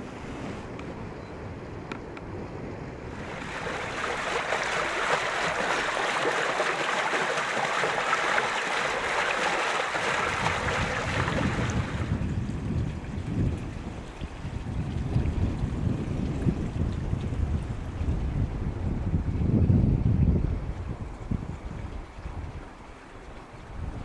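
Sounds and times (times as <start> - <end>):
low wind-like rumble: 0.0 - 6.5, 8.3 - 24.0
water rushing down a channel: 3.1 - 18.0.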